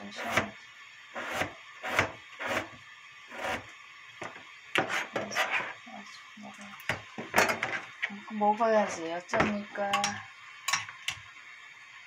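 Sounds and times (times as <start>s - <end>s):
knife chopping on plastic board: 1.3s - 2.7s.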